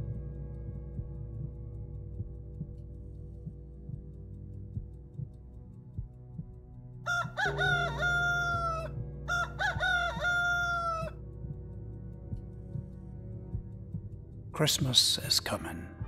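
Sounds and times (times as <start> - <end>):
low droning music: 0.0 - 16.0
rooster crowing: 7.1 - 11.2.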